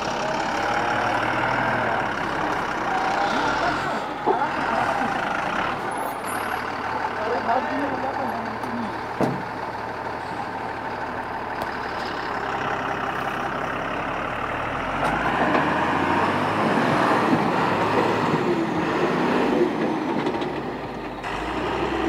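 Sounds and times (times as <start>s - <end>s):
diesel truck engine running: 0.0s - 22.0s.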